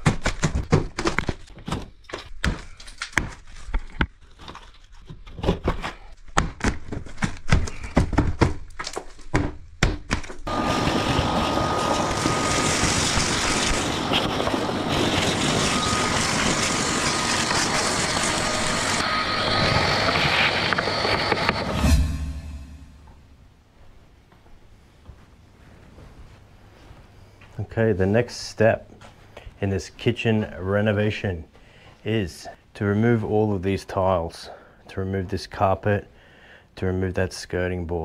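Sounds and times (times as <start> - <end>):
loud steady mechanical noise: 10.5 - 23.0.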